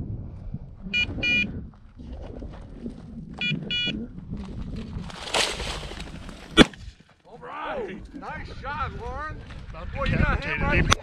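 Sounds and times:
electronic collar beeping: 0.9 - 1.5, 3.4 - 4.0.

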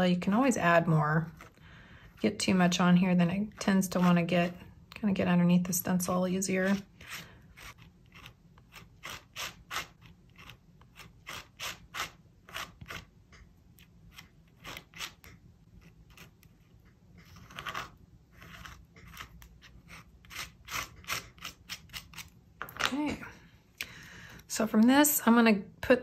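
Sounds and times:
palette knife scraping paste: 1.2 - 4.7, 6.5 - 22.4.

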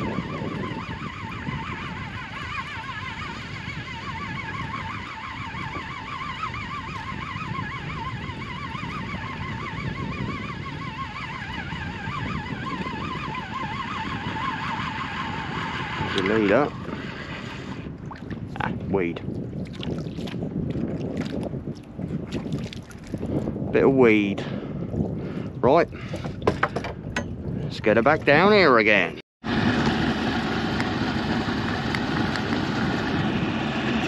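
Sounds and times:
fishing reel whirring: 0.0 - 17.8
low rumbling noise: 29.0 - 34.0.

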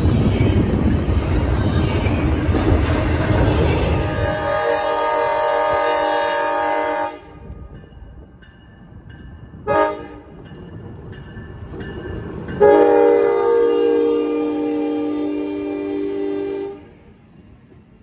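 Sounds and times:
locomotive horn blasts: 3.9 - 7.7, 9.6 - 10.4, 12.6 - 16.9.

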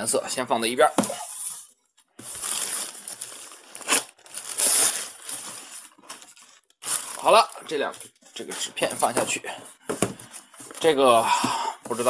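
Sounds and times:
plastic wrapping crinkling: 2.2 - 9.1.

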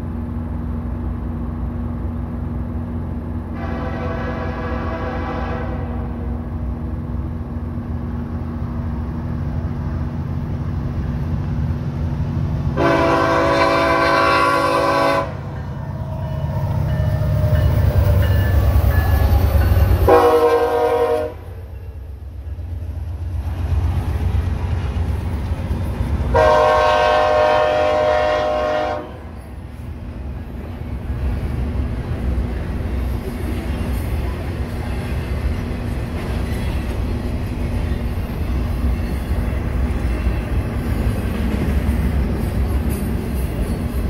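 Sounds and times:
locomotive engine rumble: 0.0 - 44.0
train rolling past: 0.0 - 44.0
locomotive horn blasts: 3.6 - 6.3, 12.8 - 16.2, 20.0 - 21.6, 26.3 - 29.4.

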